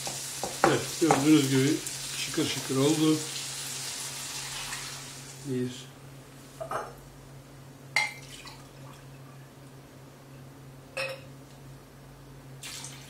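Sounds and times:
low steady hum: 5.4s - 13.0s
glass measuring cup clinking: 11.0s - 11.3s.

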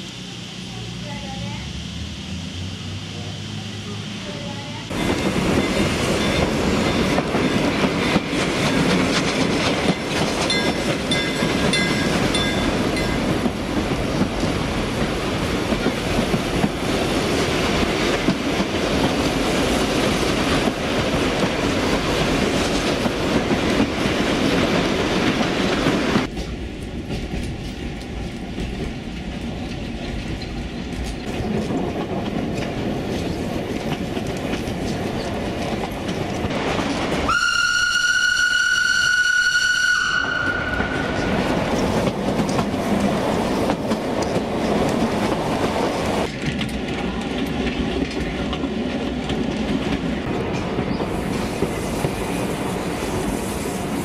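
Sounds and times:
train wheels clacking on rails: 4.9s - 37.5s, 38.2s - 54.0s.

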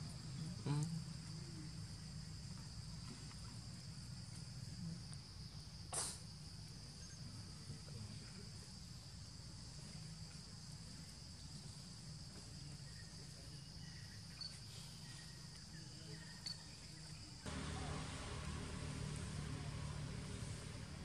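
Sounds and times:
low rumble: 17.5s - 21.0s.

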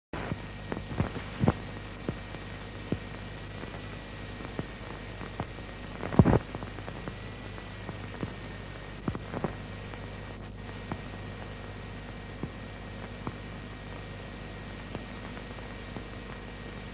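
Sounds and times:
soundtrack hiss and hum: 0.2s - 16.9s
sharp clicks and pops: 0.3s - 11.5s, 14.8s - 16.9s.

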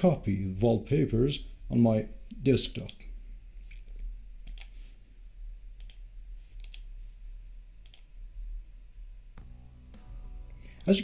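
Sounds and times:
steady low hum: 0.0s - 11.0s
computer mouse clicking: 3.7s - 4.8s, 5.8s - 6.9s, 7.8s - 8.1s.

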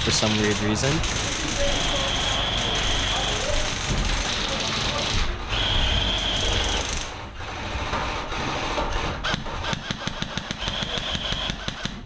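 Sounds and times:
rapid sharp gunshot clicks: 9.2s - 12.0s.

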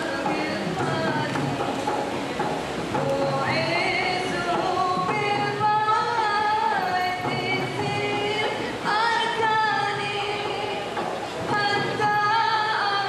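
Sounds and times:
women singing: 0.0s - 1.8s, 2.9s - 13.0s
frame drum: 0.0s - 13.0s.

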